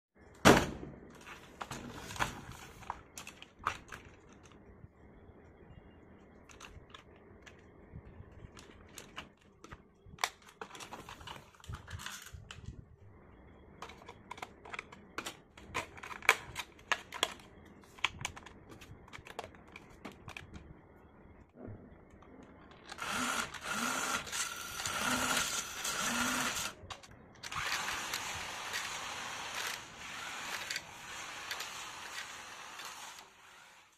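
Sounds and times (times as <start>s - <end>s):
plastic toy clicks and knocks: 13.8s - 20.6s
toy electric motor whining: 22.9s - 33.9s.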